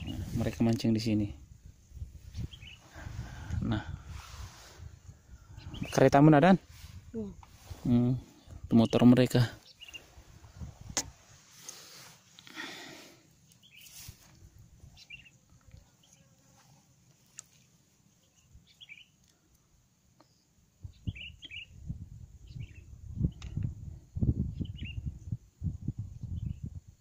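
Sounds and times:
small bird chirping: 1.8s - 3.0s, 5.3s - 6.3s, 7.1s - 10.2s, 13.5s - 14.1s, 14.8s - 16.4s, 17.2s - 19.6s, 20.2s - 25.4s.

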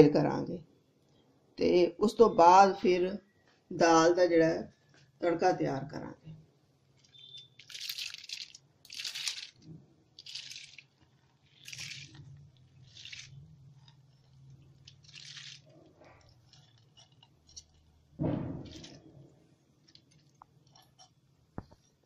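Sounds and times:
wet lentils pouring and splashing: 7.0s - 9.6s, 10.2s - 18.0s
thump: 18.2s - 19.0s.

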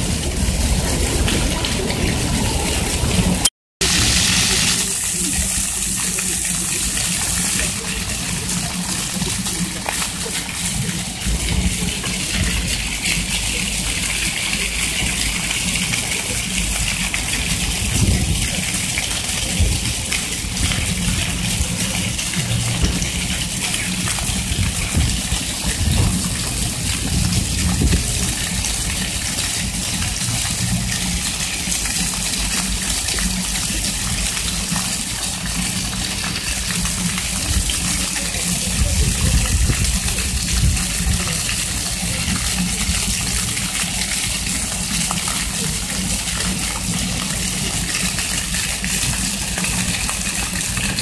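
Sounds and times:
low rumble: 0.0s - 3.4s
fountain water splashing: 0.0s - 51.0s.

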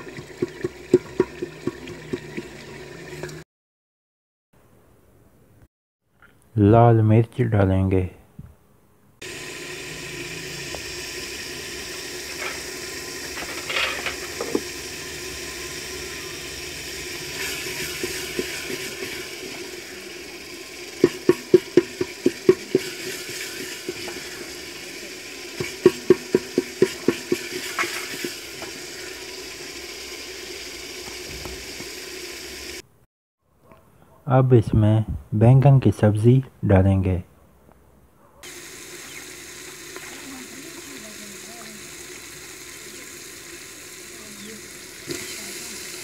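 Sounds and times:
sauce sizzling in a pot: 0.0s - 3.4s, 9.2s - 32.8s, 38.4s - 46.0s
wooden spoon tapping metal pot: 21.0s - 23.0s, 25.6s - 27.6s.

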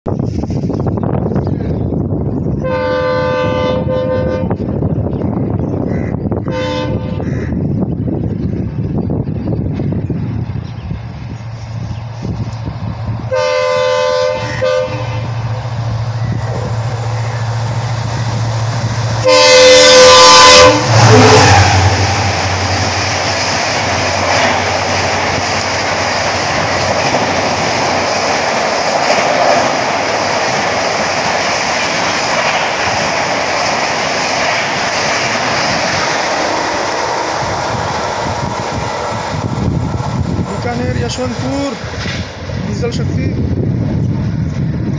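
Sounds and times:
diesel locomotive engine drumming: 0.1s - 44.9s
train wheels roaring on rail: 0.1s - 44.9s
locomotive horn blasts: 2.6s - 4.6s, 6.5s - 7.2s, 13.3s - 15.4s, 19.2s - 21.9s.

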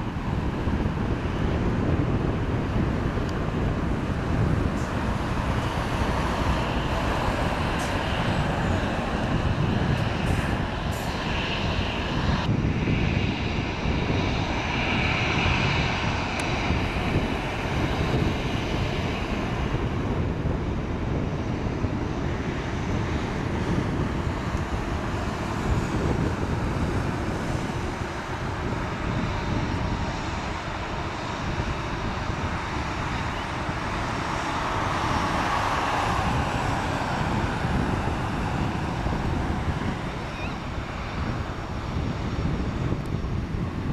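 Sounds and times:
jet engines rushing: 0.0s - 43.9s.

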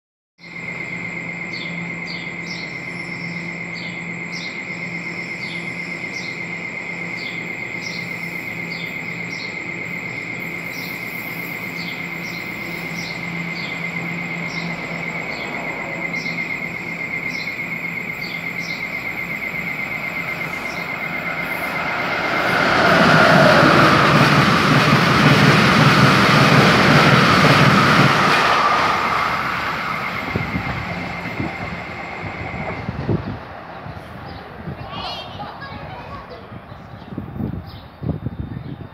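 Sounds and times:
electric train whine and hum: 0.4s - 38.9s
train passing at speed: 0.4s - 38.9s
birds chirping: 1.5s - 24.5s.

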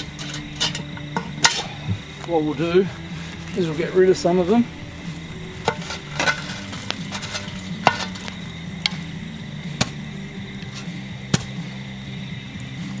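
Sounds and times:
shovel scraping and clinking on metal: 0.0s - 1.8s, 5.6s - 9.1s, 10.6s - 11.5s.

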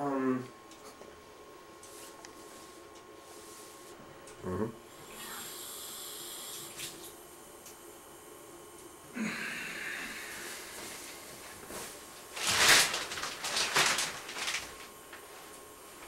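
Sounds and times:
shower curtain scraping along rod: 11.7s - 14.9s.

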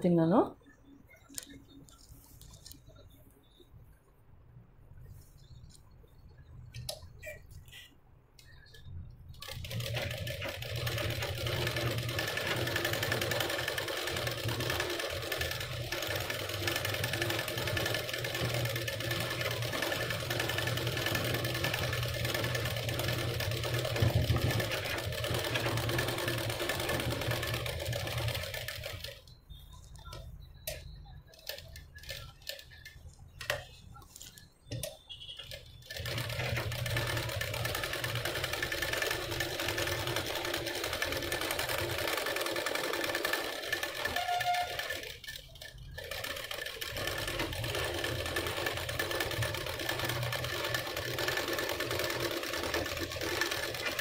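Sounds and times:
sewing machine running: 9.3s - 29.3s, 31.3s - 32.9s, 35.4s - 54.0s.

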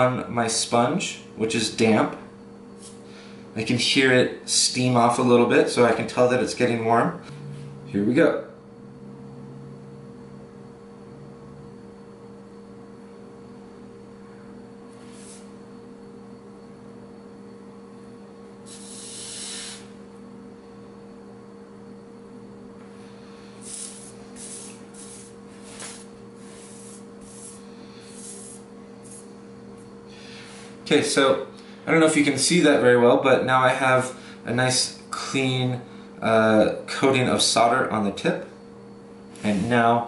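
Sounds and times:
soldering iron tip hissing: 2.7s - 3.1s, 14.9s - 15.6s, 18.6s - 20.0s, 23.0s - 29.4s
low hum: 7.2s - 17.6s.

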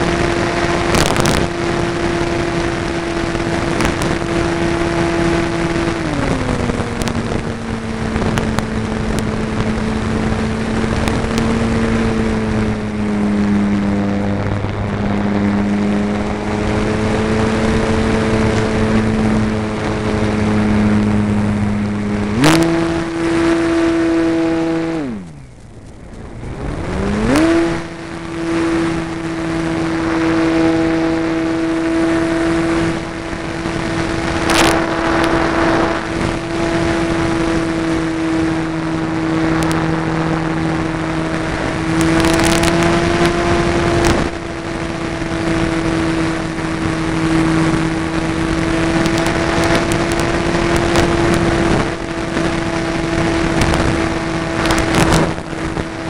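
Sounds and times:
electric motor and propeller whining: 0.0s - 56.0s
rush of air: 24.9s - 56.0s.

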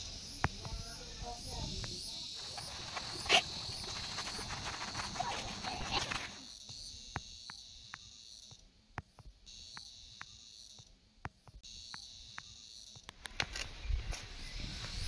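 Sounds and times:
high insect trill: 0.0s - 8.6s, 9.5s - 10.9s, 11.6s - 15.0s.

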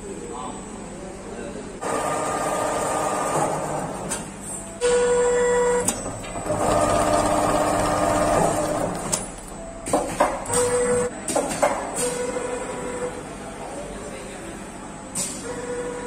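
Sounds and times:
sewing machine whirring: 5.6s - 9.2s.

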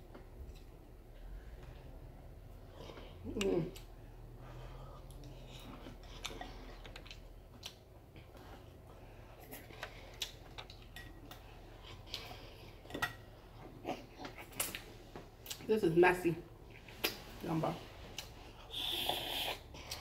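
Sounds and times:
wet chewing: 4.9s - 15.6s.

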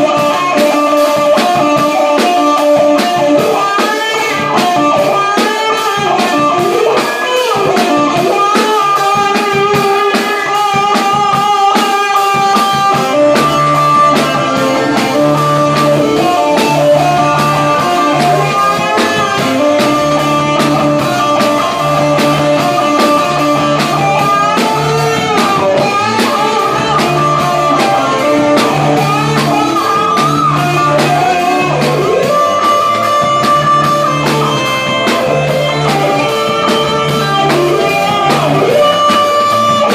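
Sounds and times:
drum kit: 0.0s - 39.9s
electric guitar: 0.0s - 39.9s
low bass line: 12.7s - 39.9s.

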